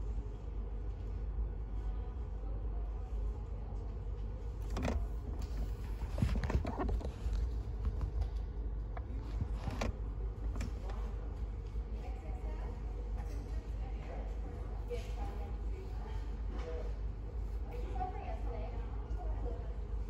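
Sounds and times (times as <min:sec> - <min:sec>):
knocks and rustles: 0:04.6 - 0:11.1.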